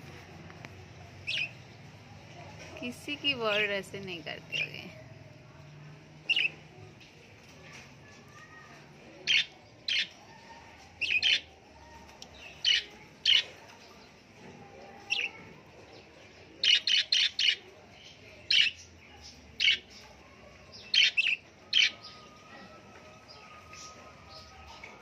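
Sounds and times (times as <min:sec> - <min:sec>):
budgerigars chirping: 0:16.6 - 0:17.6.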